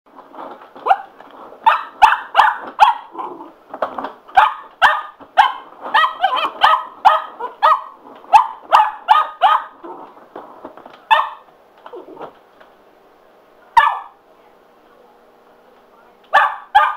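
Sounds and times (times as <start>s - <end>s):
puppy barking: 0.8s - 3.5s, 4.3s - 10.0s, 11.1s - 11.4s, 13.8s - 14.2s, 16.3s - 16.9s.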